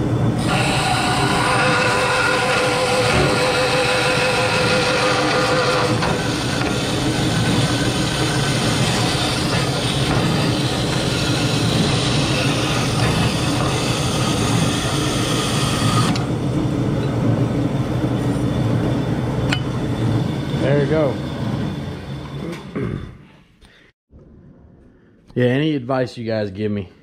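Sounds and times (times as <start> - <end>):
bandsaw running: 0.4 - 16.4, 20.0 - 22.5.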